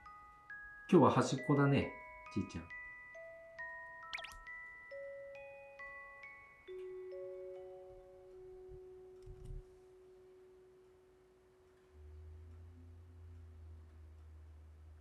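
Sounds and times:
low steady hum: 7.8s - 15.0s.

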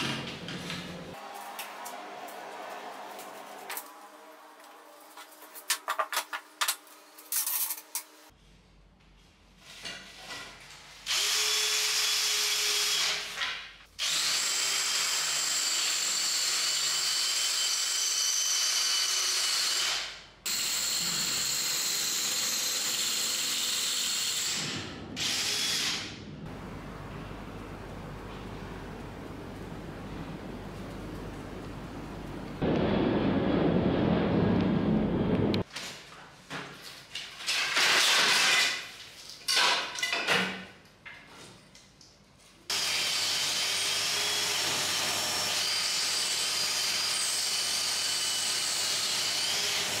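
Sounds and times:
power drill whining: 14.0s - 26.1s.

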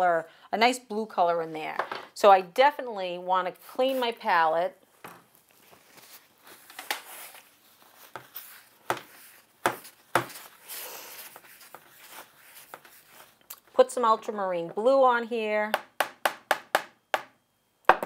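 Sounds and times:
paint palette rubbing scrape: 5.8s - 13.4s.

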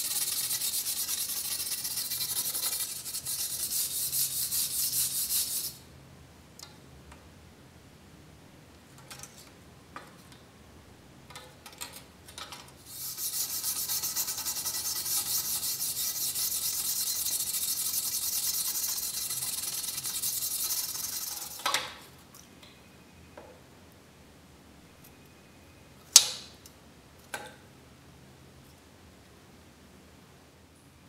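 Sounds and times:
stiff brush scrubbing metal: 0.0s - 5.8s, 12.9s - 21.6s.

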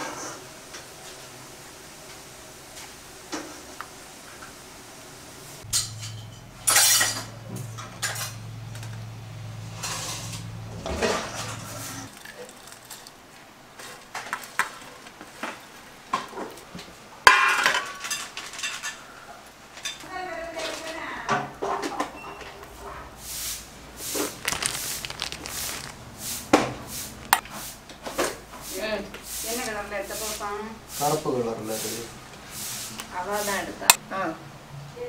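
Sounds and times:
low steady hum: 5.6s - 12.1s
steel dishes clinking and clattering: 5.7s - 7.4s.

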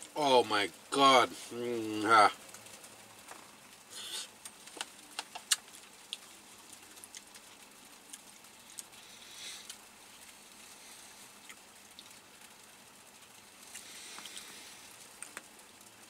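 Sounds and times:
person chewing: 4.0s - 10.4s
sharp clicks and smacks: 4.4s - 6.3s, 15.2s - 15.5s.

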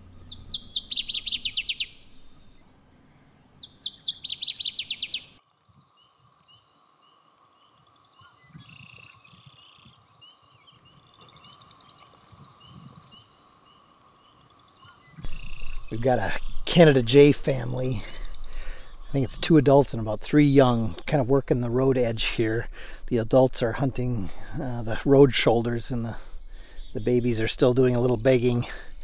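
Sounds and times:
songbird fast trill: 0.0s - 2.6s, 3.6s - 5.4s, 6.0s - 29.0s
faint bird chirps: 0.0s - 20.3s.

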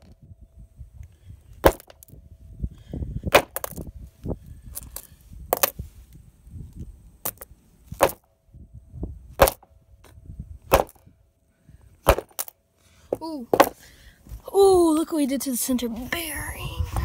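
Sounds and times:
hammer striking plastic on stone: 10.7s - 11.0s.

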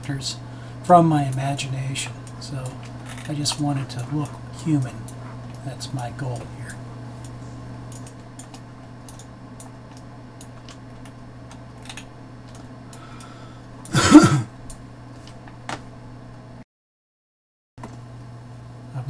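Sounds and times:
low electrical hum: 0.0s - 16.6s, 17.8s - 19.0s
person coughing: 13.9s - 14.5s.

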